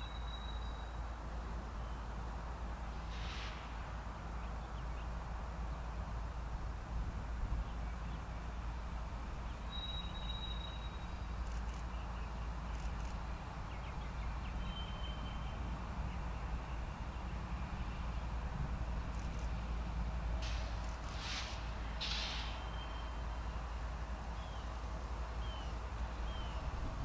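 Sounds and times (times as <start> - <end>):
birds whistling: 0.0 - 1.0, 9.5 - 18.2, 22.0 - 23.6, 25.4 - 26.7
distant freight train rumble: 0.0 - 27.0.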